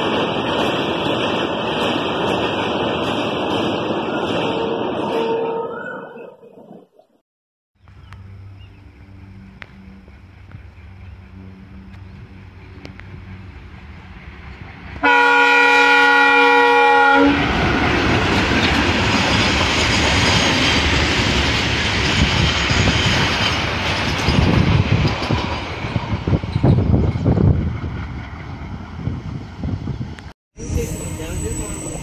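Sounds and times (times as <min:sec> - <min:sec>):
train wheels rumbling on track: 0:00.0 - 0:05.2, 0:07.9 - 0:32.0
train horn blast: 0:04.5 - 0:06.0, 0:15.0 - 0:17.6.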